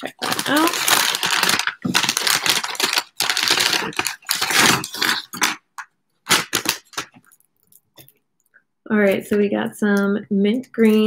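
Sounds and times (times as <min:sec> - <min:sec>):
wrapping rustling and crackling: 0:00.0 - 0:08.3.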